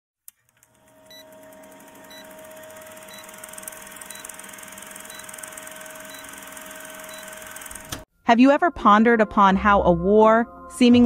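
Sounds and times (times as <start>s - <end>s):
film projector rattle: 0.4s - 8.0s
short high beeps: 6.1s - 6.4s.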